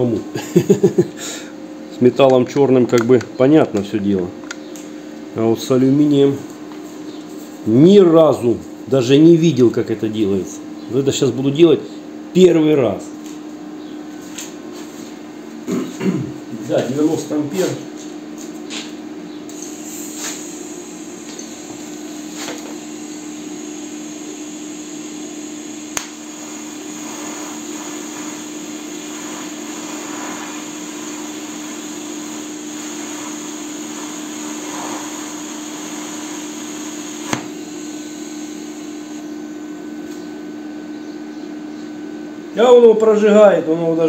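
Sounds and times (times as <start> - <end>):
welding arc hissing and humming: 19.5 - 40.1
sharp click: 26.0 - 26.2.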